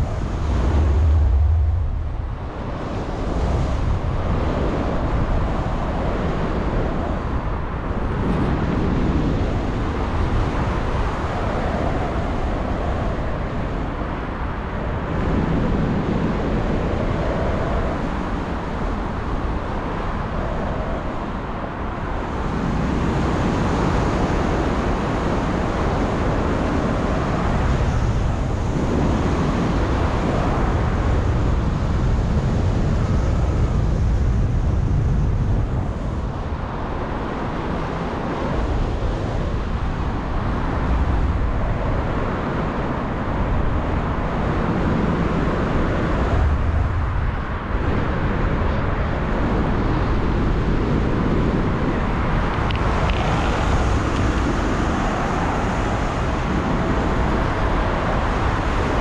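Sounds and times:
wind rushing over microphone: 0.0s - 59.0s.

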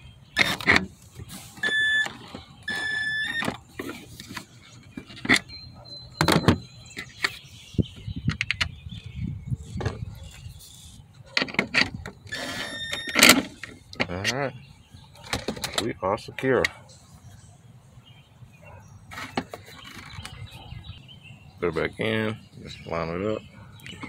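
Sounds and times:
handling clicks and knocks: 15.2s - 16.8s.

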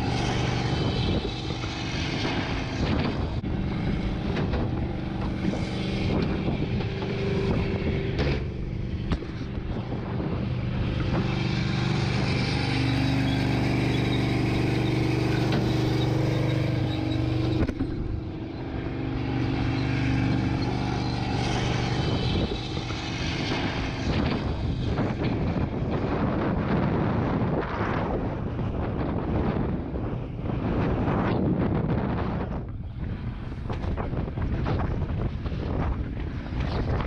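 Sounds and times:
truck engine running: 0.0s - 26.5s.

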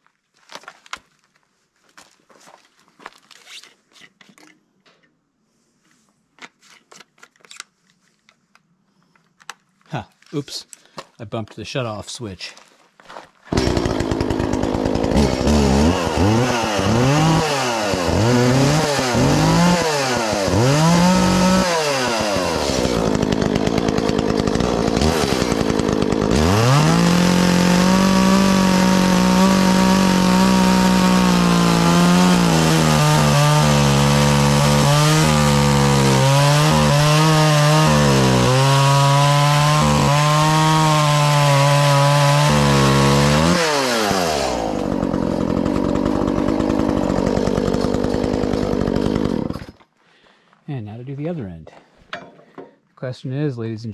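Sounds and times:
chainsaw revving and cutting timber: 13.5s - 49.9s.

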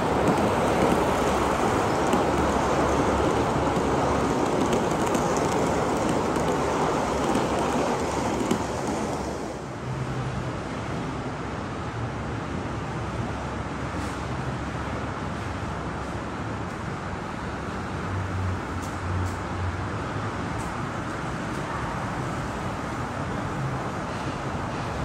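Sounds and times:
model train wheels rolling on rail: 0.0s - 9.7s.

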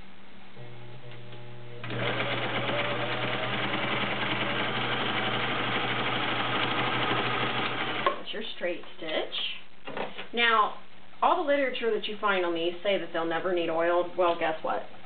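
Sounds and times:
sewing machine stitching: 1.8s - 8.2s.

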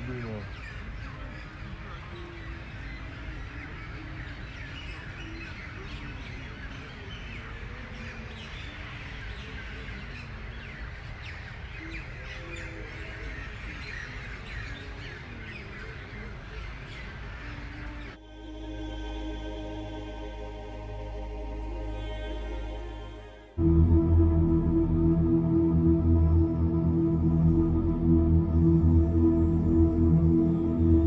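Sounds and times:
birds chirping and calling: 0.0s - 18.2s
steady low rumble: 20.3s - 31.0s.

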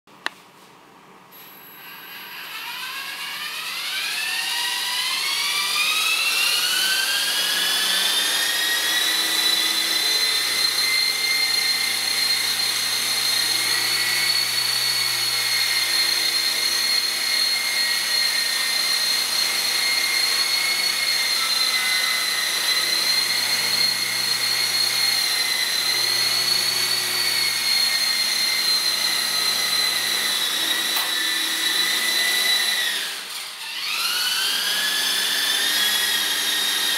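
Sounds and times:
model helicopter rotors whining: 1.8s - 36.9s.

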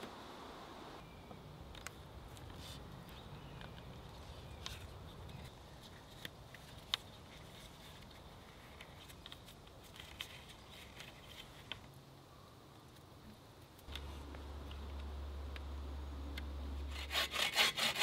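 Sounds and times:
faint low rumble: 13.9s - 17.0s.

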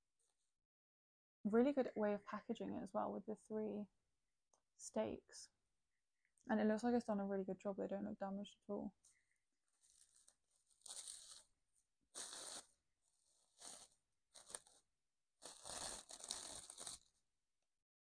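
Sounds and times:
plastic bag rustling: 9.7s - 11.6s, 12.2s - 17.1s.

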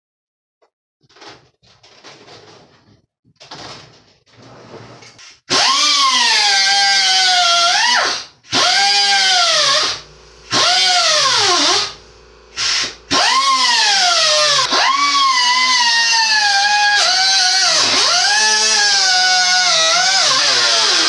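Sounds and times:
power drill cutting into metal: 5.5s - 21.0s.

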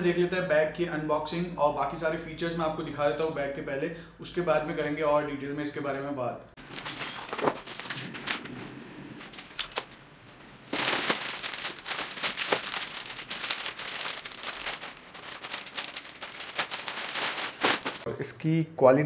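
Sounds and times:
plastic wrapping crinkling: 6.6s - 8.6s, 9.2s - 18.1s.

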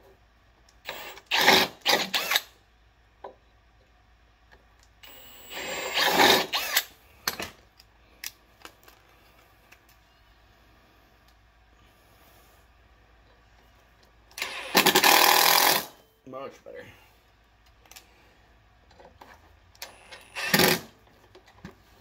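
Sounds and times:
cordless drill running: 0.9s - 2.5s, 5.0s - 6.9s, 14.4s - 15.9s, 19.8s - 20.9s.

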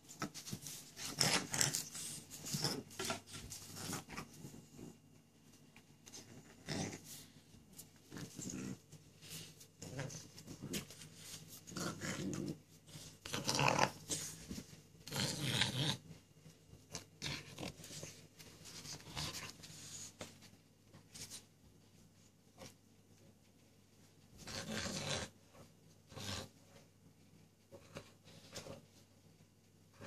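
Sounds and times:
dog play-growling and grunting: 0.2s - 5.0s, 6.1s - 7.4s, 8.0s - 8.9s, 9.8s - 11.0s, 11.6s - 14.4s, 15.0s - 16.1s, 24.4s - 26.7s.

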